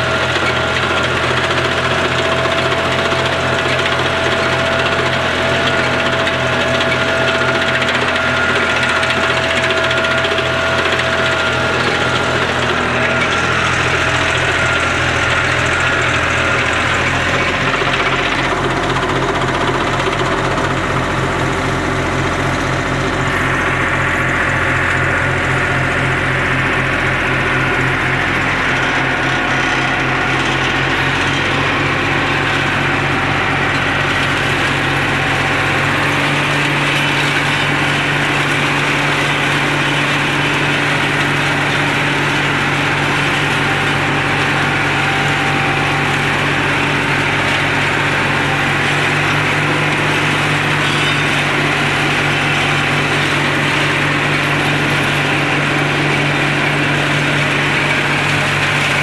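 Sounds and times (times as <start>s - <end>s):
tractor engine under load: 0.0s - 59.0s.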